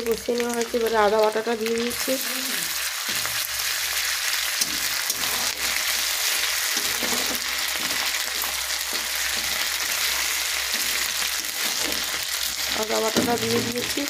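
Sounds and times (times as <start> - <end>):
paste sizzling in hot oil: 0.0 - 14.0
spatula scraping pan: 3.0 - 14.0.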